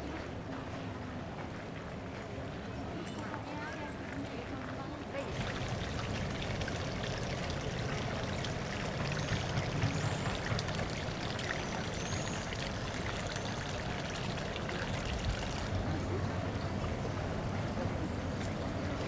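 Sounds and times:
trickling water: 5.1s - 19.0s
faint high chirps: 9.0s - 14.1s.

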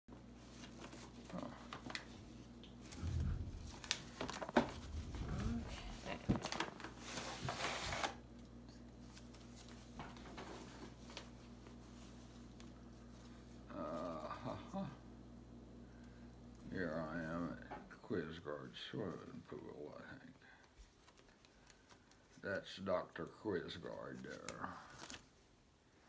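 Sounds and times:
rustling: 0.4s - 8.2s
low bumps: 3.0s - 6.6s.

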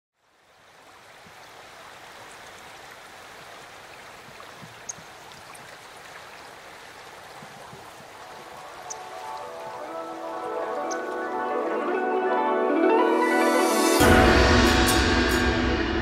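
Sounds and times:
running water hiss: 0.2s - 12.0s.

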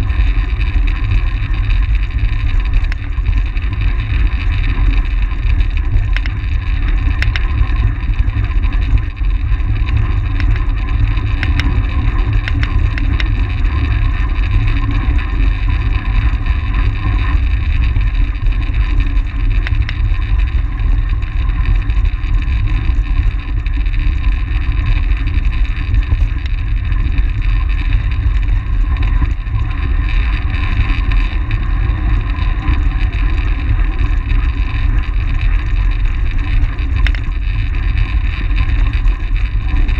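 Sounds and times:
light ticks: 2.8s - 3.1s, 6.0s - 7.8s, 9.8s - 13.4s, 19.6s - 20.1s, 36.4s - 39.0s.

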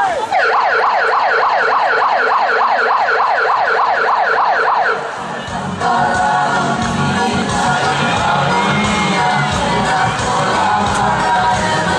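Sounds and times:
emergency siren yelping: 0.3s - 5.3s.

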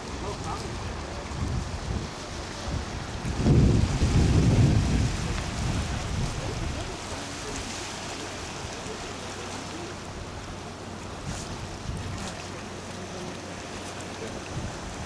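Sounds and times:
wind buffeting microphone: 0.0s - 7.8s, 10.1s - 12.4s, 14.3s - 15.0s
sea surf: 0.0s - 15.0s.

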